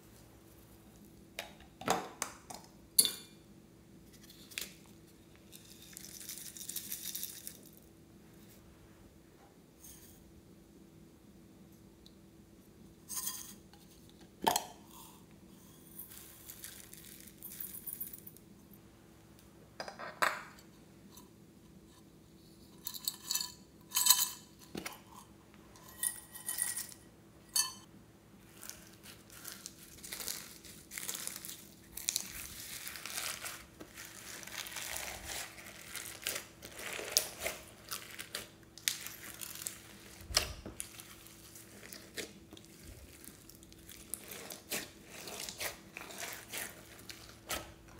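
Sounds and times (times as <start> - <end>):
hands squishing slime: 28.5 - 47.8.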